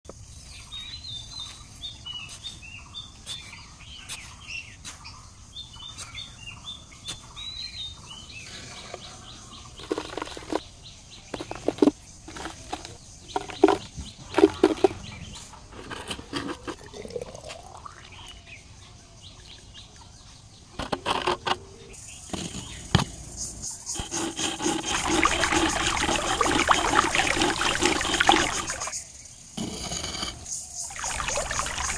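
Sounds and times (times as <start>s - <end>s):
small birds chirping: 0.1s - 31.9s
knocks and scrapes in sand: 0.3s - 16.9s, 20.8s - 31.9s
water pouring into metal bowl: 16.5s - 18.4s, 24.6s - 29.0s, 30.9s - 31.9s.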